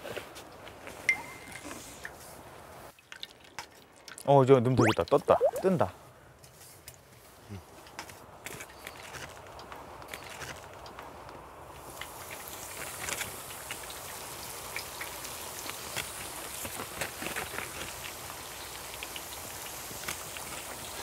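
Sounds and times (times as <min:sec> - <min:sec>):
food deep-frying in oil: 0:08.4 - 0:21.0.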